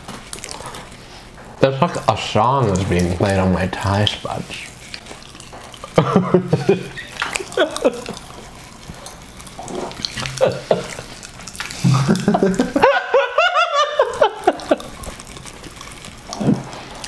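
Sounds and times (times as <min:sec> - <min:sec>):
popping candy crackling: 0:00.0 - 0:17.0
people laughing: 0:05.9 - 0:08.2, 0:10.2 - 0:11.1, 0:11.8 - 0:15.0.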